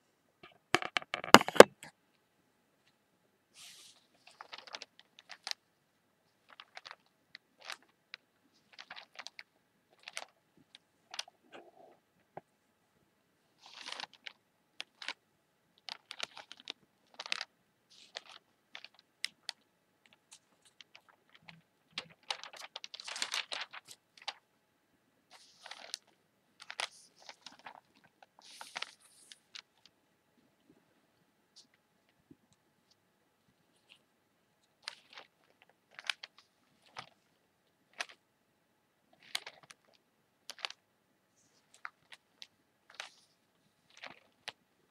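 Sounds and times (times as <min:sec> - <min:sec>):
newspaper crinkling: 0:03.6 - 0:05.6, 0:06.4 - 0:10.4, 0:13.6 - 0:15.2, 0:15.8 - 0:24.4, 0:25.3 - 0:29.9, 0:34.8 - 0:37.3, 0:37.9 - 0:38.2, 0:39.2 - 0:40.8, 0:41.4 - 0:44.6
newspaper rustling: 0:03.6 - 0:05.6, 0:06.4 - 0:07.9, 0:08.6 - 0:10.4, 0:13.6 - 0:15.2, 0:15.9 - 0:19.6, 0:20.3 - 0:24.4, 0:25.3 - 0:29.9.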